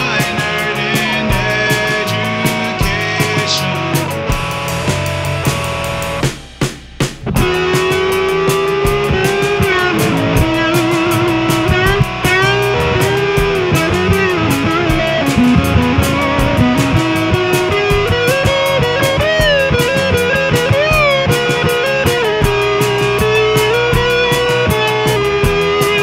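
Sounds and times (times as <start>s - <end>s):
electric guitar lead melody: 0.0s - 6.3s, 7.2s - 26.0s
bass: 0.0s - 26.0s
drum beat: 0.0s - 26.0s.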